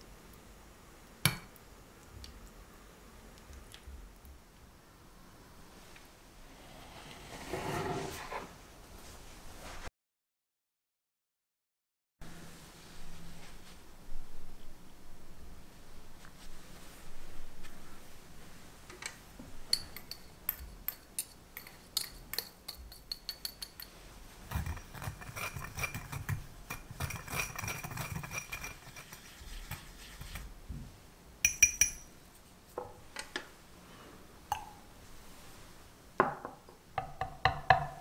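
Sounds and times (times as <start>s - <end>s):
whisk clinking against bowl: 19.7s - 23.9s, 24.5s - 30.5s, 31.5s - 32.1s
gritty stirring: 19.7s - 30.6s.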